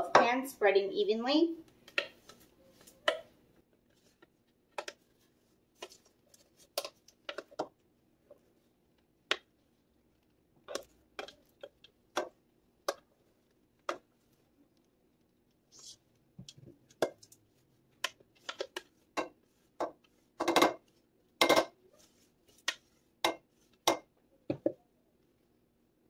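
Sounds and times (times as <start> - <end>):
spatula scraping a mixing bowl: 18.3 - 23.9.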